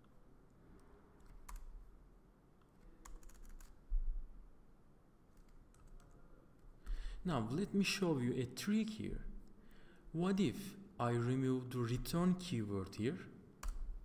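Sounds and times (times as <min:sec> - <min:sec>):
keyboard keys clicking: 0:03.0 - 0:03.8.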